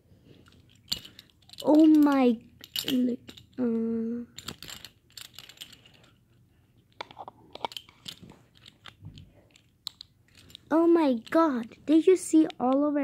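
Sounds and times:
handling clicks and crackles: 0:00.4 - 0:03.6, 0:06.8 - 0:12.9.

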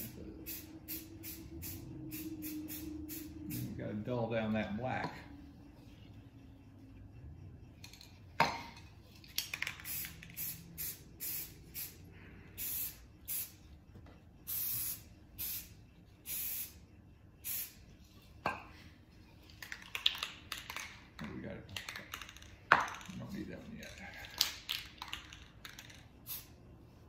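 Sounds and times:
spray paint can hissing: 0:00.0 - 0:03.7, 0:09.3 - 0:12.0, 0:12.6 - 0:13.6, 0:14.4 - 0:16.8, 0:17.4 - 0:17.8, 0:24.4 - 0:26.6.

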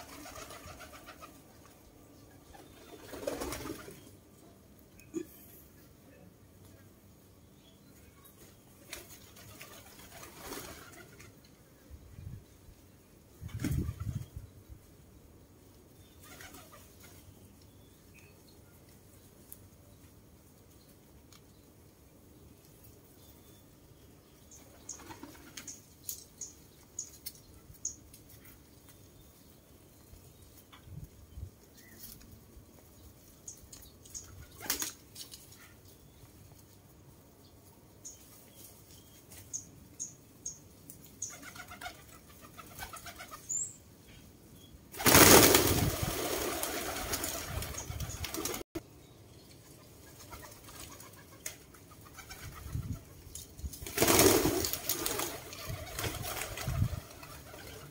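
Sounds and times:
wing flapping: 0:00.0 - 0:01.7, 0:02.5 - 0:04.0, 0:08.8 - 0:11.4, 0:44.9 - 0:48.7, 0:53.7 - 0:57.9.

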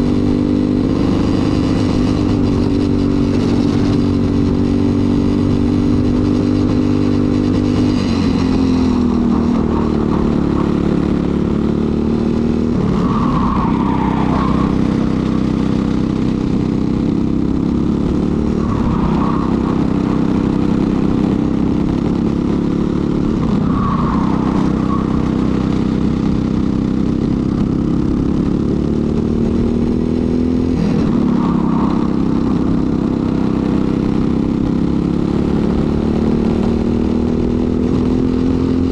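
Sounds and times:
kart engine revving: 0:00.0 - 0:38.9.

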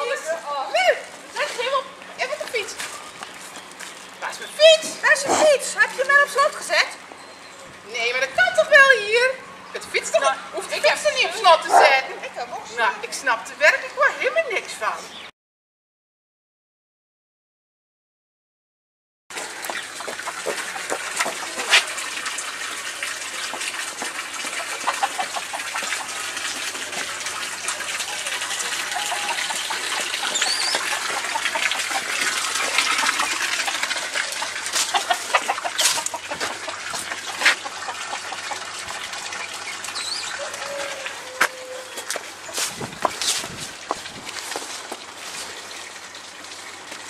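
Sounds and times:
steady outdoor hiss: 0:00.0 - 0:15.3, 0:19.3 - 0:47.0
chickens clucking: 0:19.4 - 0:22.3, 0:23.3 - 0:44.0
bird chirps: 0:30.2 - 0:31.0
footsteps: 0:41.4 - 0:45.6.

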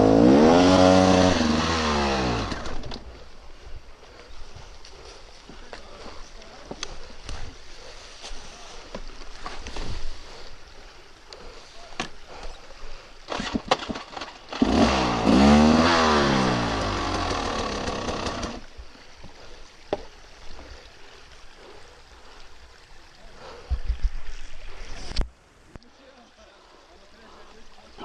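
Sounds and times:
dirt bike engine revving: 0:00.0 - 0:02.9, 0:13.3 - 0:18.6.

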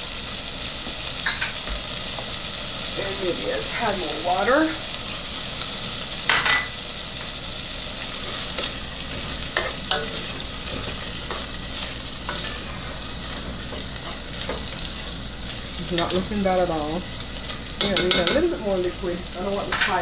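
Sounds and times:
steady hiss from hot pot: 0:00.0 - 0:20.0
spoon scraping and tapping pot: 0:17.8 - 0:18.4.

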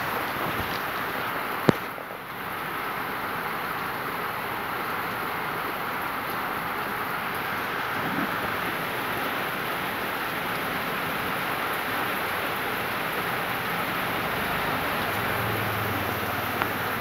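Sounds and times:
heavy rain on standing water: 0:00.0 - 0:17.0.

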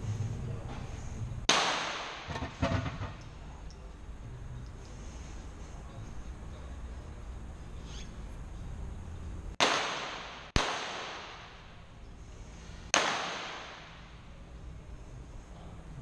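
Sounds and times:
pistol shots: 0:01.5 - 0:02.3, 0:09.6 - 0:11.6, 0:12.9 - 0:14.0.

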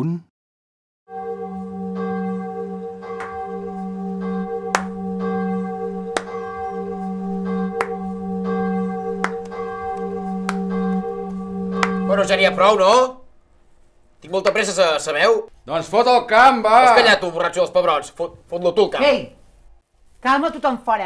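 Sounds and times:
church bell tolling: 0:01.1 - 0:13.3.

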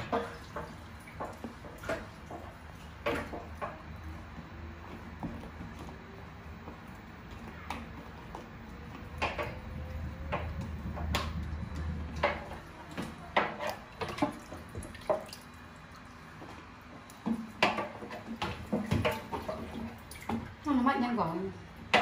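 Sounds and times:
water dripping and splashing: 0:00.0 - 0:22.0
plastic containers and utensils knocking: 0:17.2 - 0:20.4.

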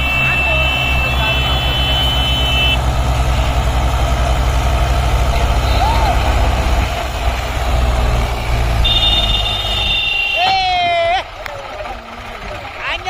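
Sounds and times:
vehicle horn: 0:00.0 - 0:02.8, 0:08.8 - 0:10.6
second tractor engine: 0:00.0 - 0:13.0
tractor diesel engine labouring: 0:00.0 - 0:13.0.

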